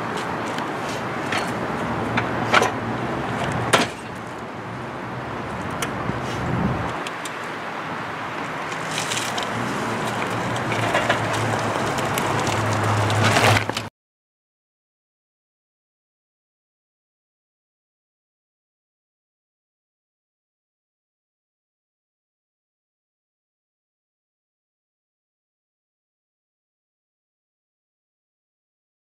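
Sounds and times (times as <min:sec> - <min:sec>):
tyres rolling on gritty pavement: 0:00.0 - 0:13.9.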